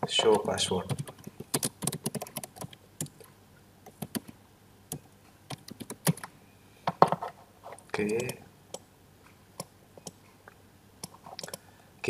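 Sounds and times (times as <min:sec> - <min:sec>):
computer keyboard typing: 0:00.0 - 0:06.3, 0:08.0 - 0:08.8, 0:11.0 - 0:11.6.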